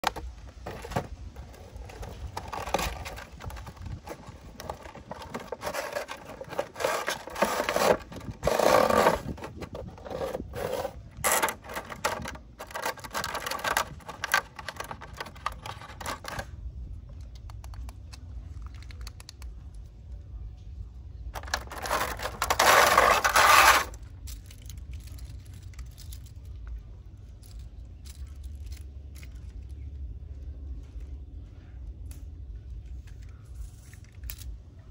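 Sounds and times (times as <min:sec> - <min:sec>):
packaging rustling and scraping: 0:00.0 - 0:16.5, 0:21.4 - 0:24.0.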